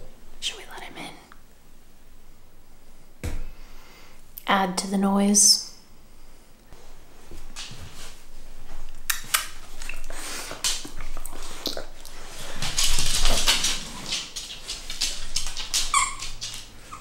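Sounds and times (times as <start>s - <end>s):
dog rustling and scuffling: 6.8s - 17.0s
dog whining: 15.9s - 17.0s.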